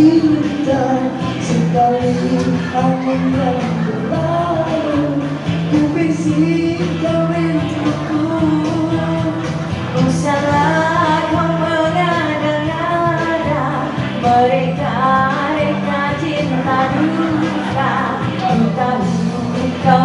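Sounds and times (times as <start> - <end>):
man singing pop song: 0.0 - 20.0
music through a pa: 0.0 - 20.0
woman singing: 0.0 - 20.0.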